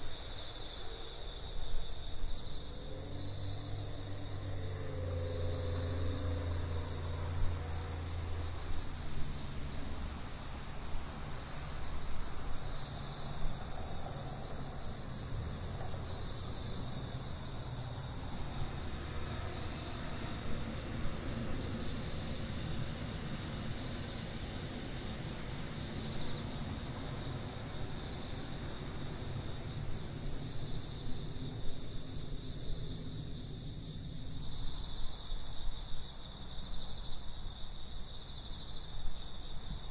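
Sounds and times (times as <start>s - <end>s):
crickets trilling: 0.0s - 39.9s
high-pitched insect song: 0.0s - 39.9s.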